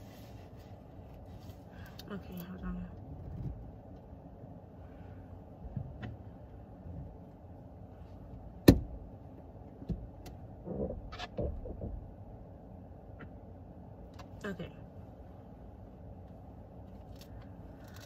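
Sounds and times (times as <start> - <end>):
low steady rumble: 0.0 - 18.0
rustling and small knocks: 9.8 - 12.3.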